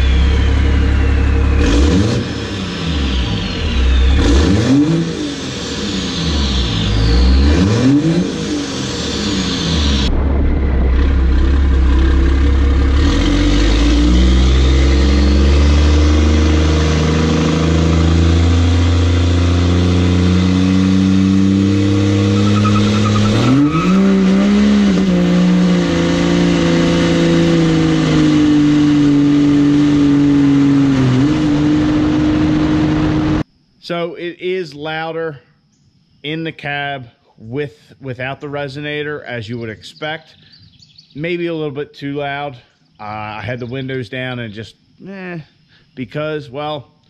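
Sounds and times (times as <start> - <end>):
diesel truck accelerating: 0.0 - 33.5.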